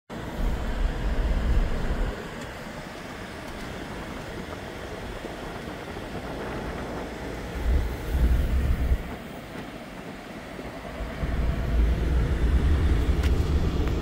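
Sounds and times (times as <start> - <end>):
truck cab vehicle rumble: 0.1 - 14.0
freight train rolling past: 0.2 - 14.0.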